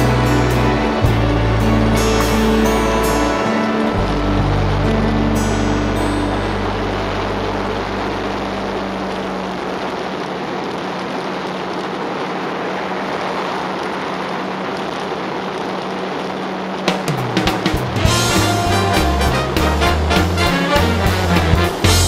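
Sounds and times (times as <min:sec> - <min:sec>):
background music: 0:00.0 - 0:09.4, 0:17.2 - 0:22.0
wind and road noise: 0:00.0 - 0:22.0.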